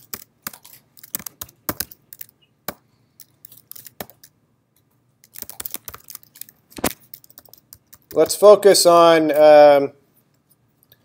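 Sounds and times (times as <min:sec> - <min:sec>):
computer keyboard typing: 0:00.0 - 0:04.3, 0:05.2 - 0:08.5.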